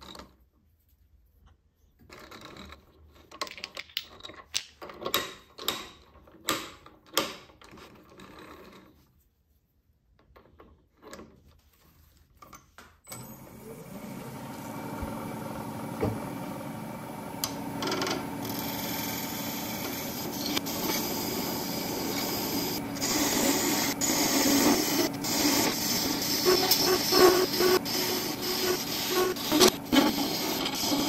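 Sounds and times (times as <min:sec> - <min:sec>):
lathe tool scraping metal: 0:17.8 - 0:31.0.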